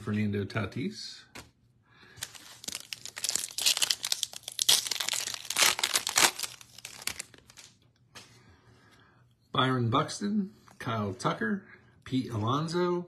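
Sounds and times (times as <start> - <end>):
plastic wrapper crinkling and tearing: 2.2 - 7.8.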